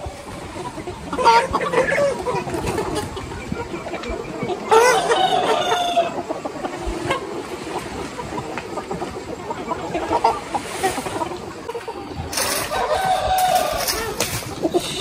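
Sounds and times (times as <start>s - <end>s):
chickens clucking: 0.0s - 15.0s
rooster crowing: 4.7s - 6.2s, 12.4s - 14.2s.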